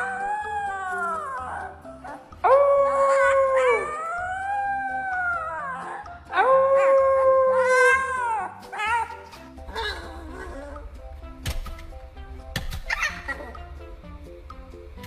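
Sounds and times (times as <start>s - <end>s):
puppy howling: 0.0s - 10.9s.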